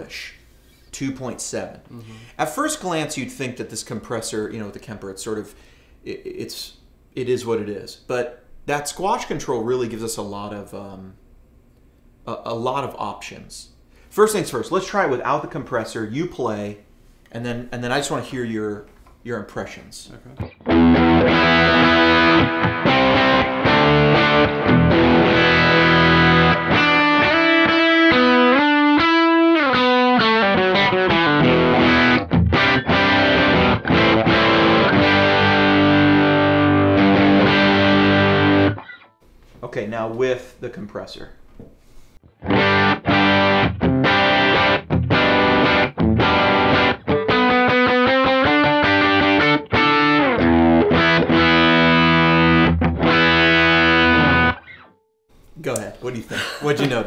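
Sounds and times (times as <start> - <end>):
overdriven electric guitar: 20.4 - 39.1, 42.2 - 54.9.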